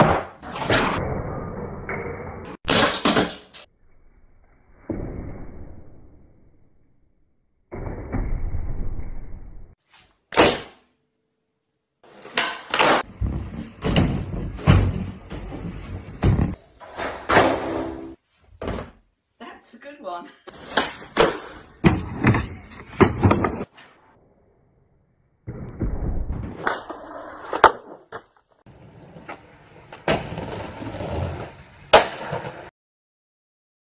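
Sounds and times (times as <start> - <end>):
skateboard slapping floor: 12.0 - 18.8, 20.5 - 23.8, 25.9 - 32.7
skateboard wheels rolling: 26.6 - 32.7
skateboard cracking on landing: 29.2 - 32.7.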